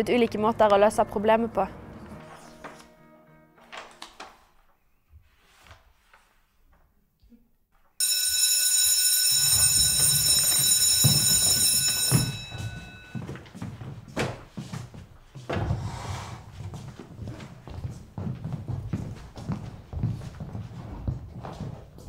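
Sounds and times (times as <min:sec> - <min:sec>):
electric school bell ringing: 0:08.0 - 0:13.4
footsteps: 0:09.4 - 0:22.0.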